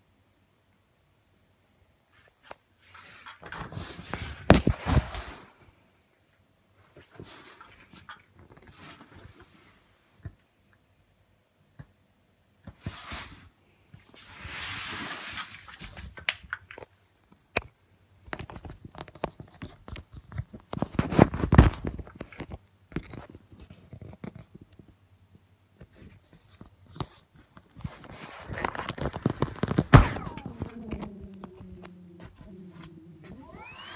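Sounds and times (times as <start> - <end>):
vinyl rubbing and crinkling: 2.1 - 5.7, 12.7 - 16.8, 18.3 - 25.0, 25.7 - 33.9.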